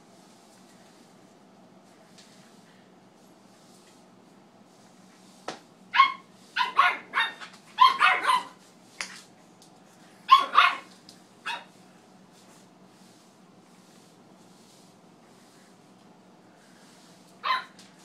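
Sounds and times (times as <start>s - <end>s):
puppy barking in high yaps: 5.9s - 8.6s, 10.3s - 10.9s, 11.5s - 11.7s, 17.4s - 17.8s.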